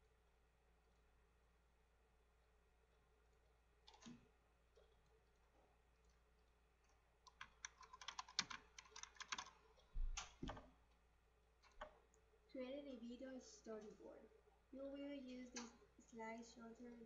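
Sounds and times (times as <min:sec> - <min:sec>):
computer keyboard typing: 0:07.2 - 0:10.7.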